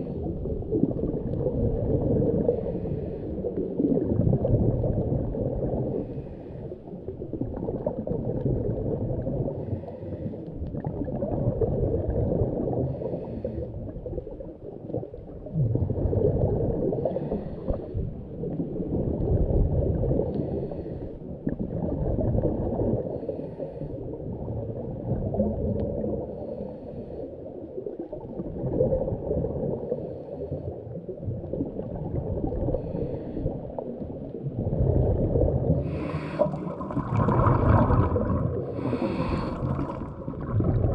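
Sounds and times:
exhaled bubbles gurgling: 0.0 - 40.9
muffled underwater rumble: 0.0 - 40.9
diver breathing through regulator: 2.3 - 3.6, 5.8 - 6.9, 9.5 - 10.6, 12.8 - 13.9, 16.9 - 18.1, 20.2 - 21.2, 23.0 - 24.2, 26.2 - 27.5, 29.8 - 30.8, 32.7 - 34.0, 35.6 - 40.3
faint breathing hiss: 2.4 - 3.6, 5.8 - 7.0, 9.5 - 10.6, 12.9 - 13.9, 16.9 - 18.0, 20.2 - 21.3, 23.0 - 24.2, 26.3 - 27.6, 29.8 - 31.0, 32.7 - 34.1, 35.7 - 36.8, 38.6 - 40.0.

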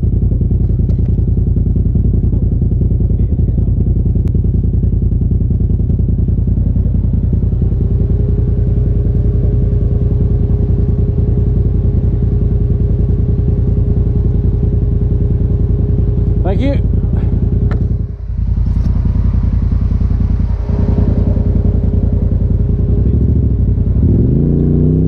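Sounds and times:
engine idling: 0.0 - 25.0
faint steady tone: 6.0 - 16.4, 17.2 - 24.0.

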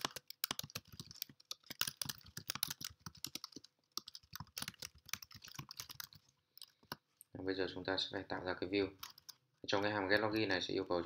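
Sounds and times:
computer keyboard typing: 0.0 - 7.0, 9.0 - 10.5.

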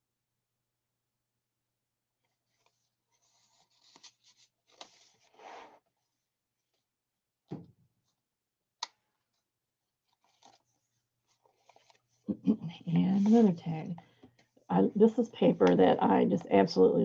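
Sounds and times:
paper rustling and sliding: 2.2 - 6.1, 10.0 - 12.2
soft thump: 7.5 - 7.7.

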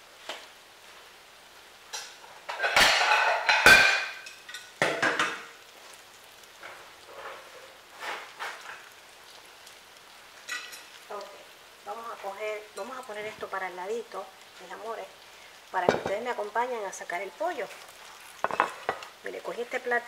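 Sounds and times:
crockery clattering: 2.5 - 5.5, 15.9 - 16.2, 18.4 - 19.0.

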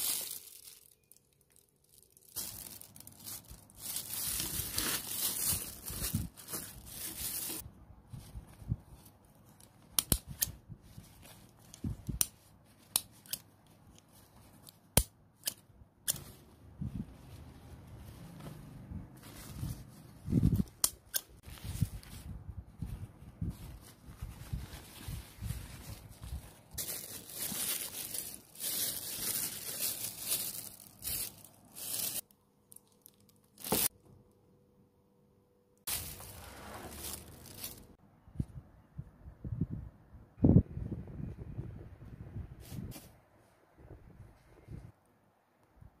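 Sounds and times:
plastic bags crinkling: 0.0 - 7.6, 23.4 - 33.9, 35.9 - 38.0
paper rustling: 1.9 - 7.6, 21.4 - 32.2, 35.9 - 38.0.

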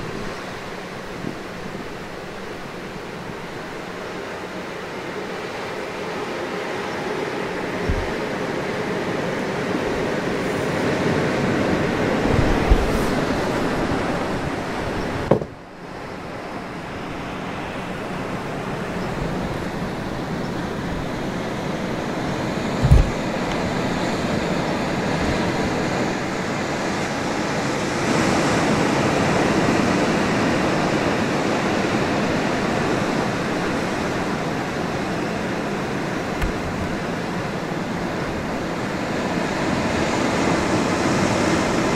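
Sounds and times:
steady rushing outdoor noise: 0.0 - 41.9.

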